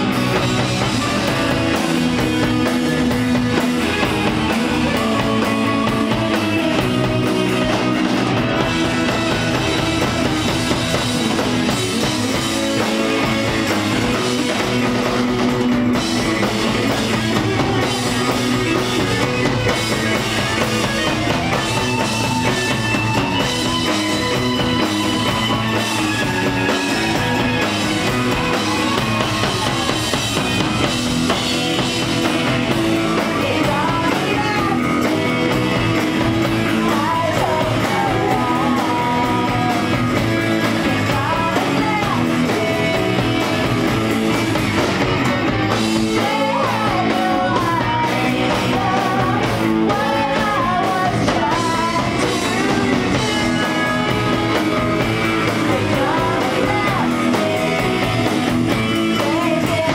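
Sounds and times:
drum kit: 0:00.0 - 0:59.9
electric guitar: 0:00.0 - 0:59.9
live rock band playing: 0:00.0 - 0:59.9.

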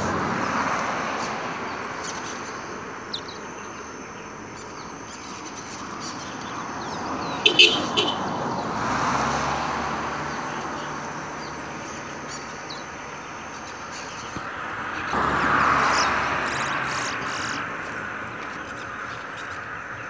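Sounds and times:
motor vehicles passing: 0:00.0 - 0:20.0.

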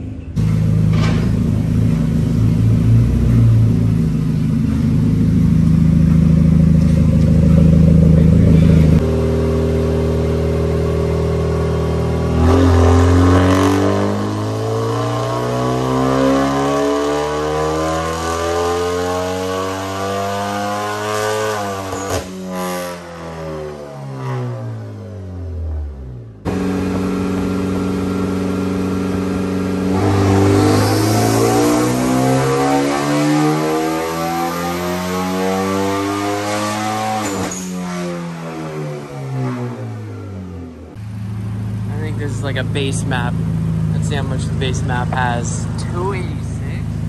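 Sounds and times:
exhaust crack: 0:00.4 - 0:14.6, 0:37.1 - 0:47.0
car engine revving on dyno: 0:00.4 - 0:47.0.

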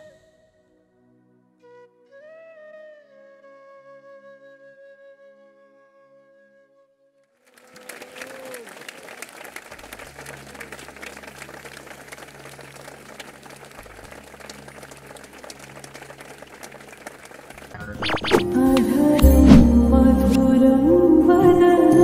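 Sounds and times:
audience applauding: 0:07.4 - 0:18.7.

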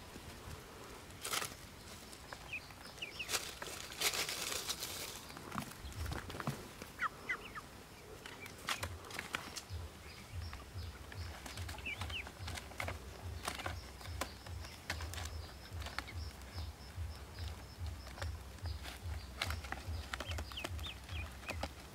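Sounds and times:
rustles: 0:00.0 - 0:21.9
duck chirps: 0:06.9 - 0:07.7.

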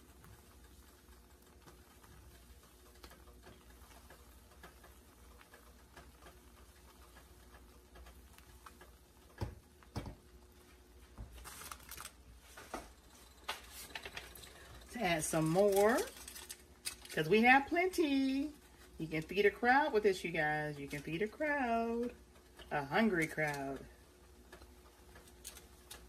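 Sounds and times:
rustling: 0:10.6 - 0:17.3.

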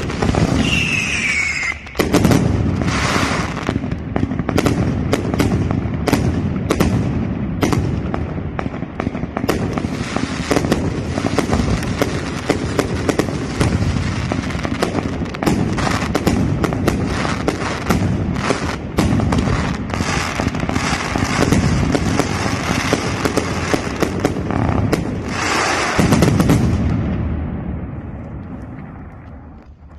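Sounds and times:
fireworks bangs: 0:00.0 - 0:29.9
fireworks crackling: 0:00.0 - 0:29.9.

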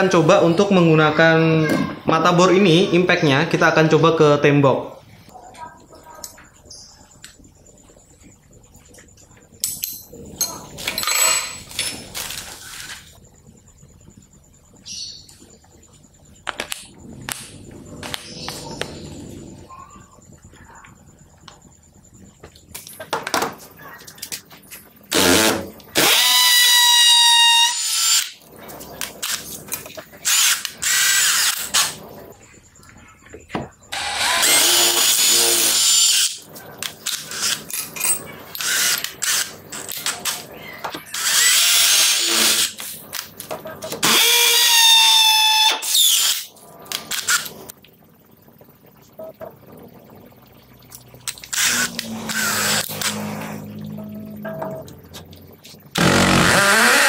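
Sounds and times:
hammer drill boring into masonry: 0:25.1 - 0:28.3, 0:34.0 - 0:36.4, 0:41.1 - 0:42.7, 0:44.0 - 0:46.5, 0:51.5 - 0:53.2, 0:56.0 - 0:57.0
low steady hum: 0:46.5 - 0:56.6.

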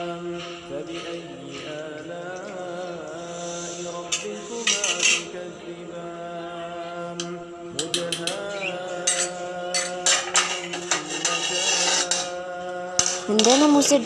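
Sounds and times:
music with chant-like vocals: 0:00.0 - 0:14.0
metal spoon clinking against a pan: 0:04.1 - 0:05.3, 0:07.8 - 0:12.4.

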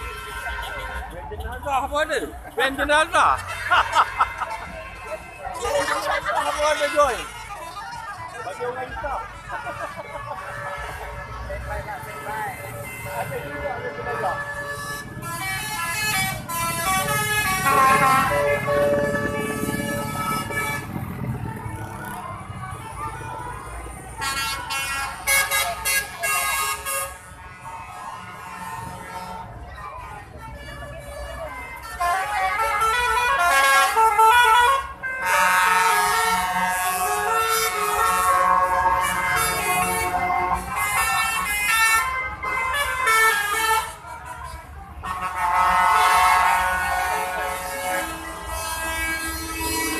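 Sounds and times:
passing traffic: 0:00.0 - 0:49.9
musical vehicle horn tune: 0:09.2 - 0:21.3, 0:24.1 - 0:49.9
lorry musical air horn: 0:14.4 - 0:20.9.

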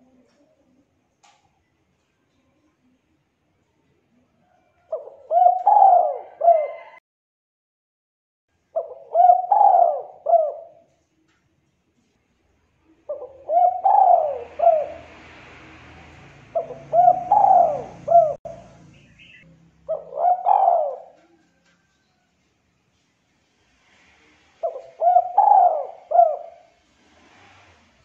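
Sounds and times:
dove cooing: 0:04.4 - 0:07.0, 0:08.8 - 0:11.0, 0:13.0 - 0:15.4, 0:16.4 - 0:22.0, 0:23.9 - 0:27.8.

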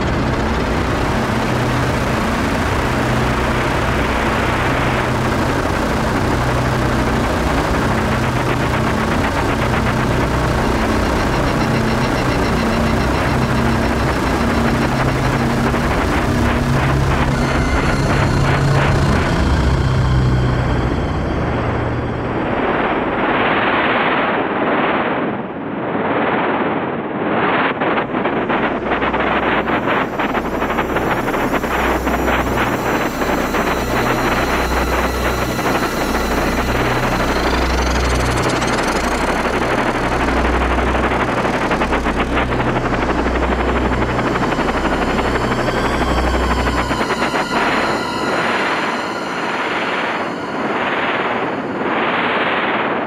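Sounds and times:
rapid crackling stutters: 0:00.0 - 0:21.2, 0:27.7 - 0:52.1
deep pulsing hum: 0:00.0 - 0:23.5, 0:28.1 - 0:52.1
dense electronic hiss: 0:00.0 - 0:23.5, 0:27.8 - 0:53.0.

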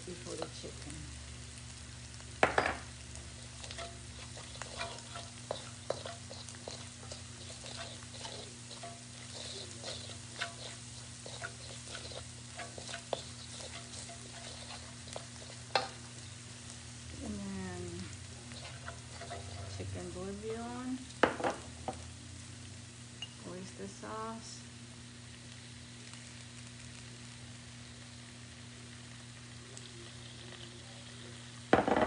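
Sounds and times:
paste sizzling: 0:00.0 - 0:23.5
wooden spoon scraping a wok: 0:03.1 - 0:22.0.

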